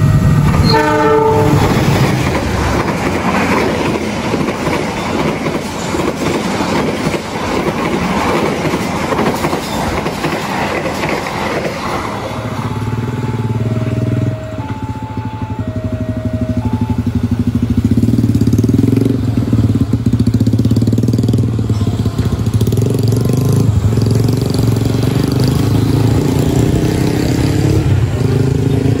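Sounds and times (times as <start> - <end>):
level-crossing two-tone warning signal: 0.0 - 1.9, 12.4 - 17.8
motorcycle engines pulling away: 12.4 - 29.0.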